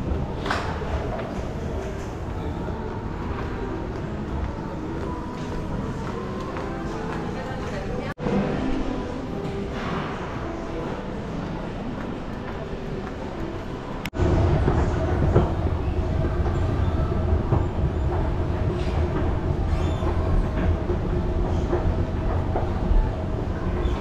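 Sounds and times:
faint mechanical hum: 0.0 - 24.0.

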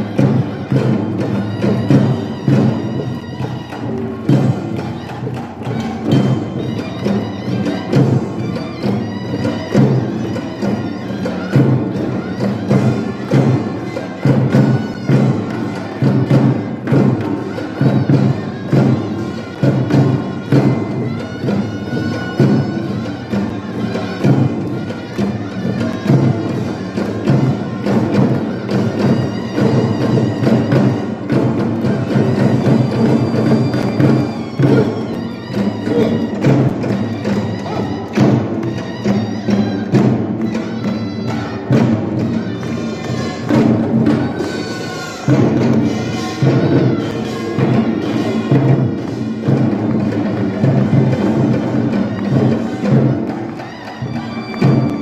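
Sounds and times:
drums beating driving rhythm: 3.8 - 41.0.

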